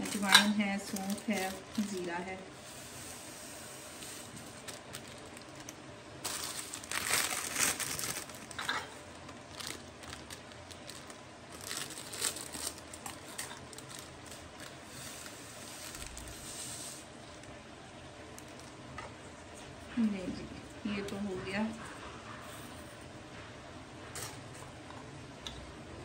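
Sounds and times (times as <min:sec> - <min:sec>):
seeds pouring into glass jars: 0:00.0 - 0:05.6, 0:13.6 - 0:17.1
plastic bags crinkling: 0:00.0 - 0:19.0.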